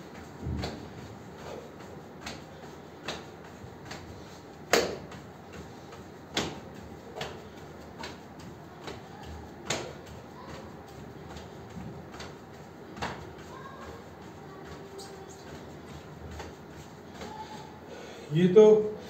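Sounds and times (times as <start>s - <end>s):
slaps on yoga mat: 0.4s - 1.0s, 2.2s - 5.3s, 6.2s - 13.5s.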